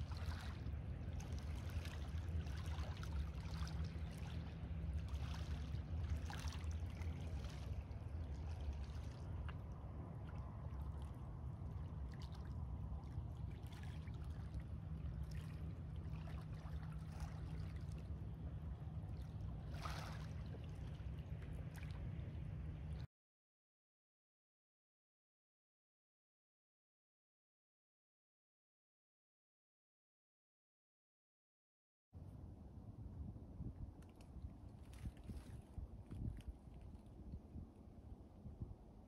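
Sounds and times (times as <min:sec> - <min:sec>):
low steady rumble: 0:00.0 - 0:23.1, 0:32.2 - 0:39.0.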